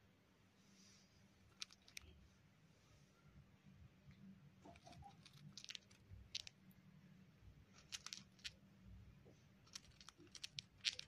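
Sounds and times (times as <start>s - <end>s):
cockatiel grinding beak: 4.7s - 6.5s, 9.7s - 11.0s.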